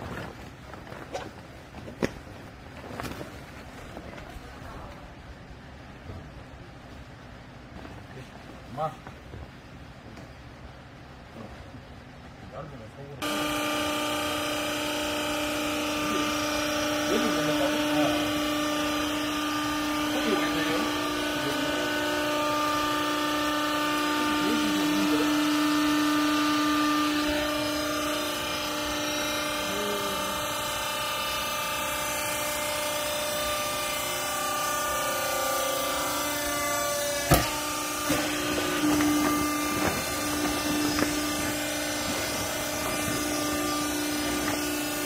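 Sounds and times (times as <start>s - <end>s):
hydraulic pump motor humming: 13.2s - 45.0s
sharp knock: 37.3s - 38.2s.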